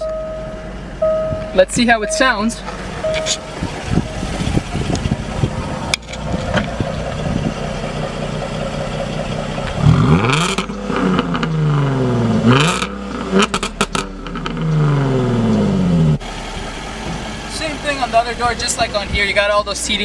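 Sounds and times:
car engine idling and revving: 0.0 - 20.0
sharp exhaust pops: 1.0 - 16.3.

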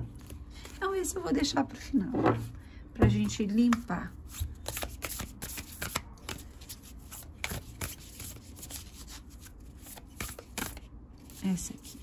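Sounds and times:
cards being shuffled: 0.0 - 0.8, 3.6 - 12.0.

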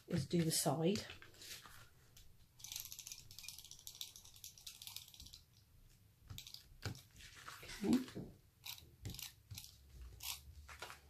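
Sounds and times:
tape pen crackling rasp: 8.6 - 11.0.

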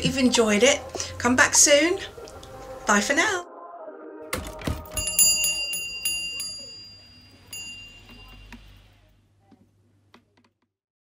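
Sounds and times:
shop door bell ringing: 4.9 - 8.9.

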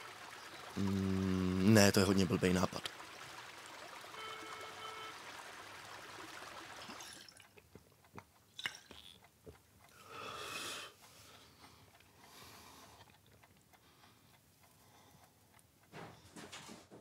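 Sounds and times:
faint outdoor hiss: 0.0 - 15.8
mobile phone beep: 4.2 - 5.2.

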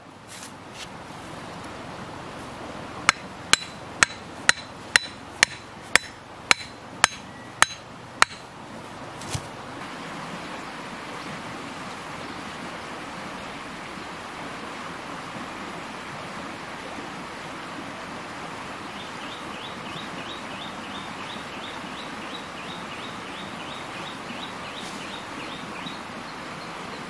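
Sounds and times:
metal blade hammering wooden stake: 3.1 - 8.5.

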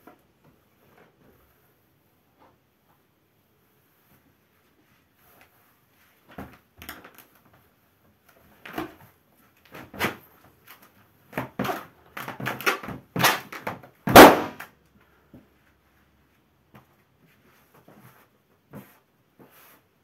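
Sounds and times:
balloon bursting with loud bang: 14.1 - 14.6.

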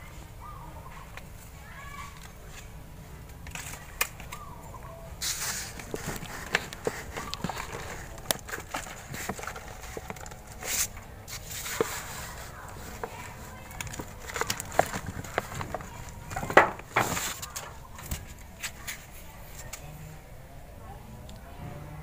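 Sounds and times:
plastic sacks rustling: 5.2 - 19.1.

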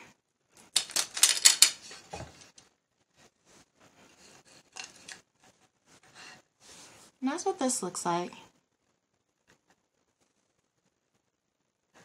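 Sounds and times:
faint rubbing and clicks: 0.5 - 7.0, 8.8 - 11.3
metal chain clicking and rattling: 0.6 - 2.6.

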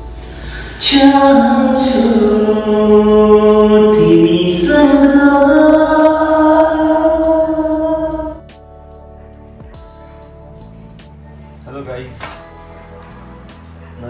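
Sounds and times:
man singing unaccompanied: 0.8 - 8.4.

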